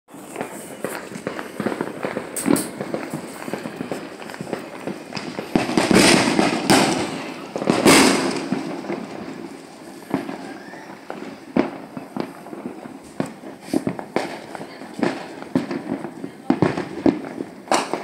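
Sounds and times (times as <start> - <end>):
fireworks bangs with echo: 0.1 - 18.0
sharp fireworks pops: 0.1 - 18.0.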